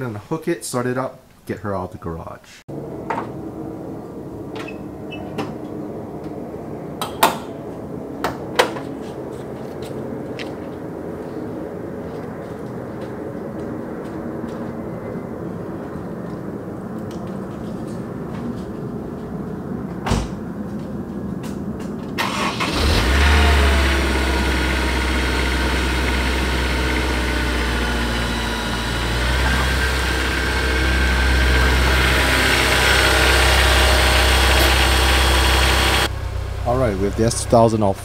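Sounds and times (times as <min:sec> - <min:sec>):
engine starter cranking: 0:22.2 - 0:36.1
car engine idling: 0:22.2 - 0:38.0.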